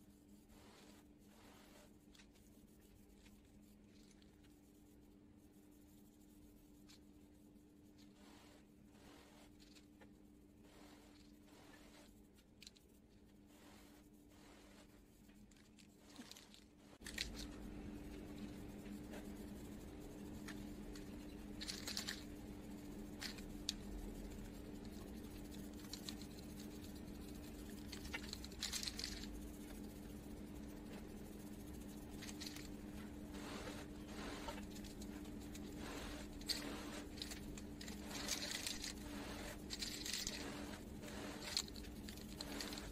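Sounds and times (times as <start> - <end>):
faint low hum: 0.0 - 42.9
spray paint can hissing: 31.6 - 42.9.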